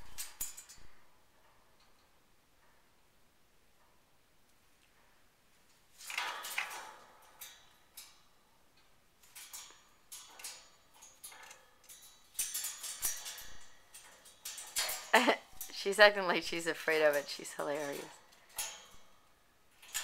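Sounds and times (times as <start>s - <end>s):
parrot rattling toys in cage: 0.0s - 2.2s, 5.9s - 8.4s, 9.2s - 20.0s.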